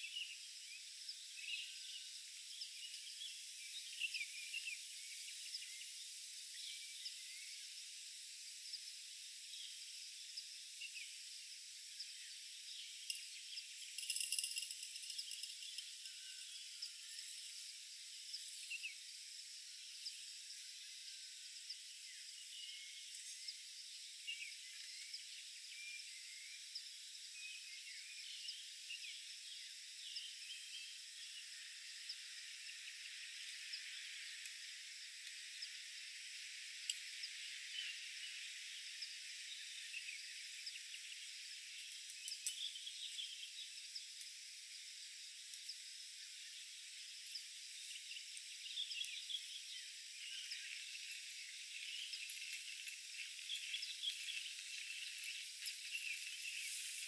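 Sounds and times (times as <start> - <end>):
steady high hiss: 0.0 - 57.0
high-pitched insect buzzing: 45.0 - 57.0.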